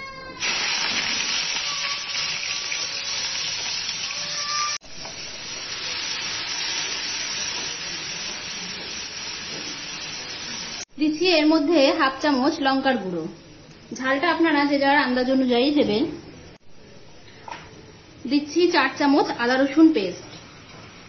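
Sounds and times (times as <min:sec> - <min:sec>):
onions sizzling in oil: 0:00.4 - 0:10.9.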